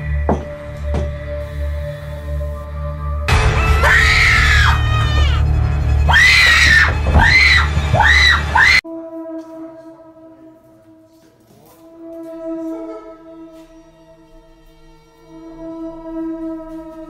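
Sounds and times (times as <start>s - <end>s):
low music drone: 0.0s - 17.0s
woman screaming: 3.6s - 5.4s, 6.1s - 8.8s.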